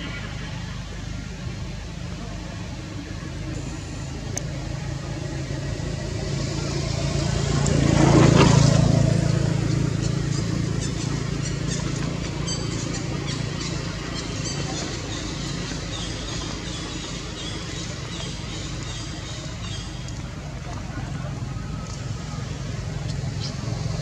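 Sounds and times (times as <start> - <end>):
motor vehicle passing by: 1.8 - 24.0.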